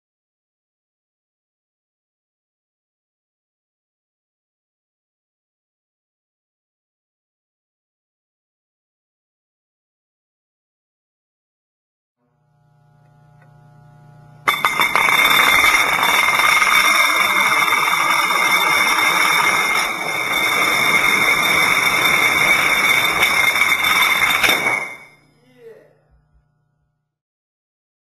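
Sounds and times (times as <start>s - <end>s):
faint low hum: 12.3s - 17.8s, 24.9s - 27.2s
metal weights clattering and ringing: 14.5s - 25.2s.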